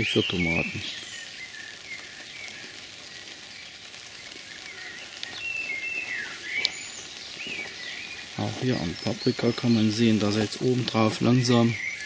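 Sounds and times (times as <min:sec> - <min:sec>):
light steady hiss: 0:00.0 - 0:12.0
small birds chirping: 0:00.0 - 0:12.0.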